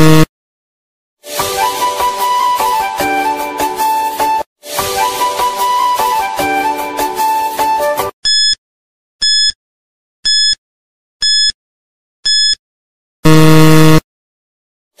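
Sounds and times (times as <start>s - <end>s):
short high beeps: 12.3s - 12.6s.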